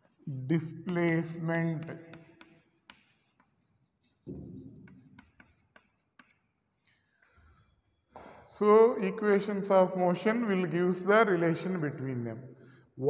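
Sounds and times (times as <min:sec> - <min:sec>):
chalk writing on blackboard: 0:00.0 - 0:06.9.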